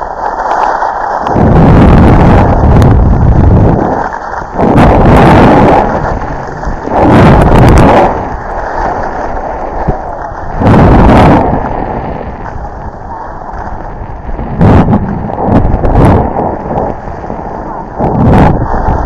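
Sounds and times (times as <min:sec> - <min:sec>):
skis running over snow: 0:00.0 - 0:19.0
wind buffeting microphone: 0:01.3 - 0:19.0.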